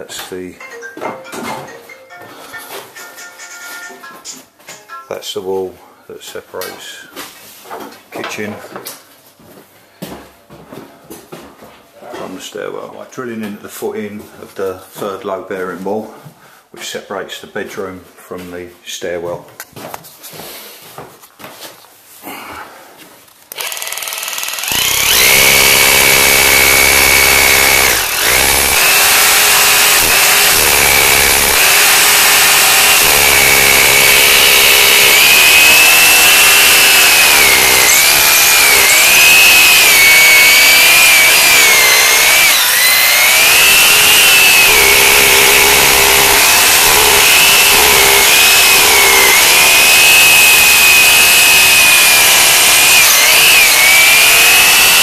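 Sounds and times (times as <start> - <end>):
electric drill boring into wall: 23.5 - 55.0.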